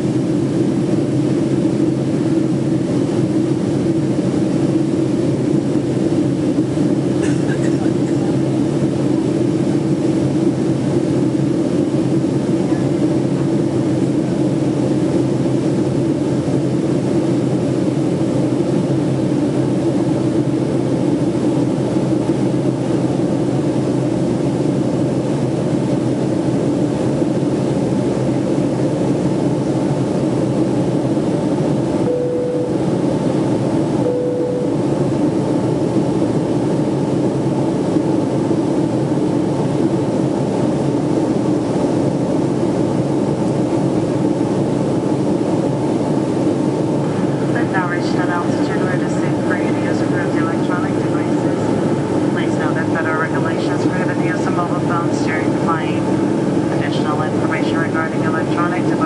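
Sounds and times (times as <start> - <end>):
airplane cabin engine noise: 0.0 - 59.0
short tones: 32.1 - 32.8, 34.0 - 34.8.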